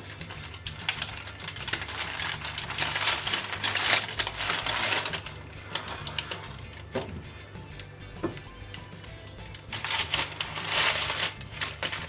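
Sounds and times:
baking paper crinkling: 0.0 - 6.9, 9.4 - 12.0.

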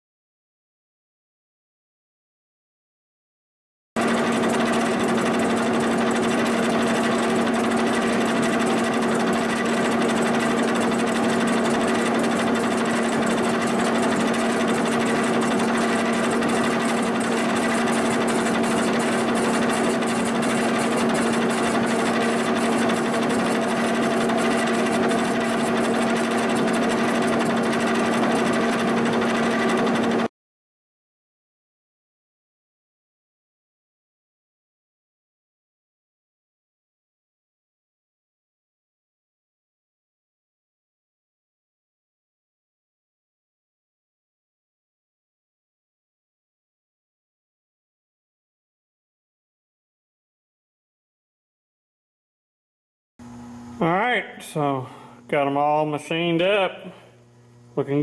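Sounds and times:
milling machine humming: 4.0 - 30.3, 53.2 - 58.0.

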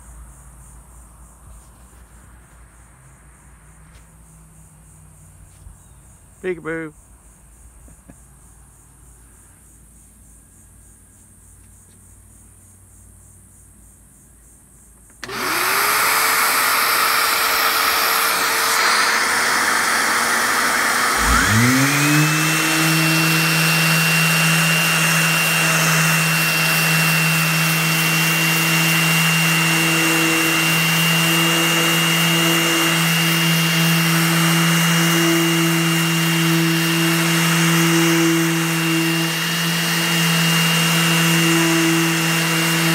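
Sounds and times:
orbital sander whining: 15.1 - 42.9
vacuum running with hiss: 15.2 - 42.9.

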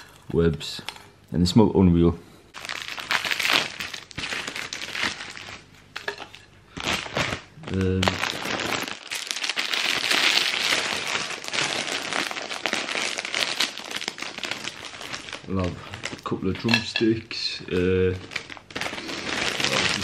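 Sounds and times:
plastic wrappers crinkling: 2.6 - 20.0.

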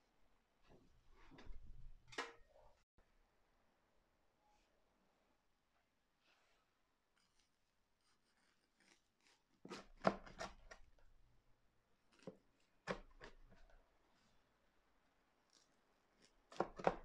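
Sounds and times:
knife cutting crunchy pancake: 7.2 - 10.9, 15.5 - 17.0.

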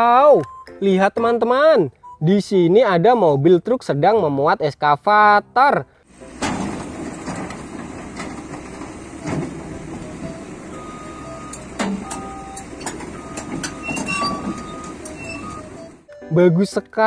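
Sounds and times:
excavator engine running: 6.1 - 16.1
metallic clanks: 6.3 - 16.0
short high squeaks: 11.9 - 16.0.

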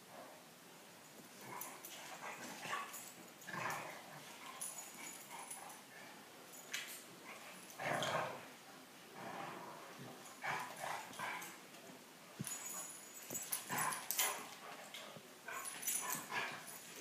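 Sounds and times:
dogs play-fighting vocal noise: 1.3 - 6.2, 10.0 - 11.6, 12.4 - 17.0.

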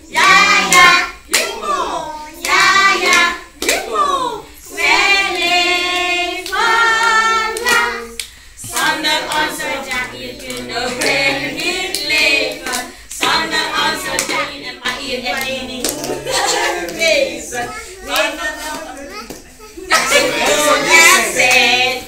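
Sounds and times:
group singing: 0.0 - 22.0
hand clapping: 0.2 - 1.6, 2.4 - 3.9, 5.4 - 16.2.

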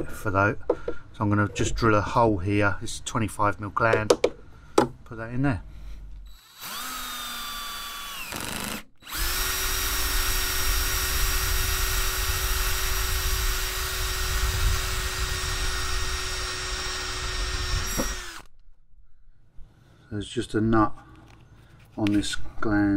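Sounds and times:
cordless drill motor whine: 6.2 - 18.5
hole saw cutting plastic: 6.4 - 18.5.

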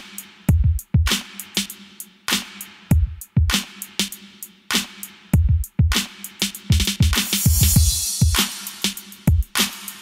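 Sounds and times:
intro music with drum beat: 0.0 - 10.0
snare and cymbal hits: 0.0 - 10.0
low kick drum: 0.5 - 1.2, 2.9 - 3.6, 5.3 - 6.0, 6.7 - 8.4.

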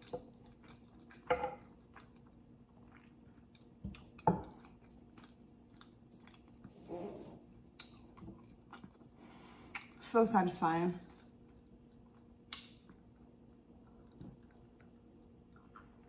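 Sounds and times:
close chewing of food: 0.0 - 6.8, 7.4 - 16.0
wet mouth clicks: 12.5 - 12.8.

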